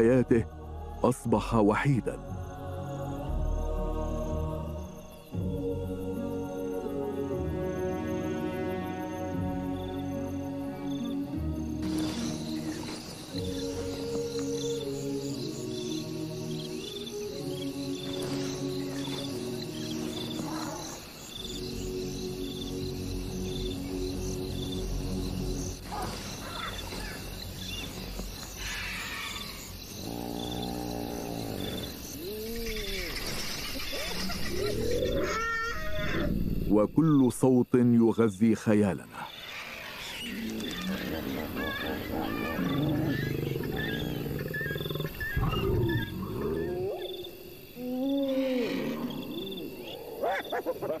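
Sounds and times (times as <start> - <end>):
crickets chirping: 0.0 - 51.0
rising and falling animal calls: 11.8 - 21.8, 25.9 - 37.2, 39.2 - 51.0
long low animal call: 28.6 - 36.5, 39.5 - 51.0.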